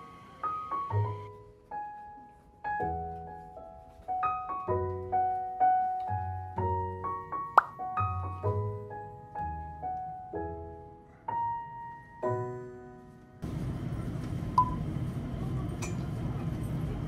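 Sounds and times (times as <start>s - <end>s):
gentle piano music: 0.0s - 13.5s.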